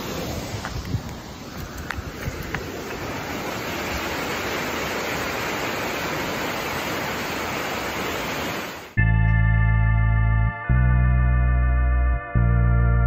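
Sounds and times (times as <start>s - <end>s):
whitewater rushing down creek: 0.0s - 9.0s.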